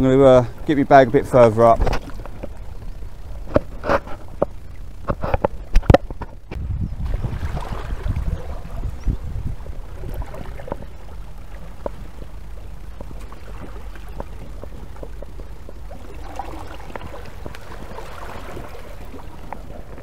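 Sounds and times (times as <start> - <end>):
low rumble: 0.0 - 20.0
small ticks and splashes: 0.5 - 20.0
sea water washing among rocks: 7.0 - 12.2, 13.0 - 20.0.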